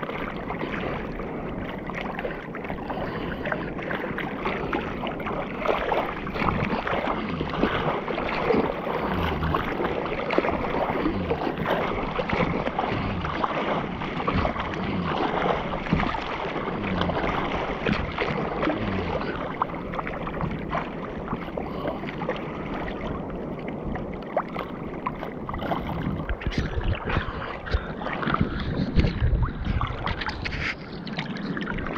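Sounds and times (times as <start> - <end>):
sea water splashing on camera: 0.0 - 31.9.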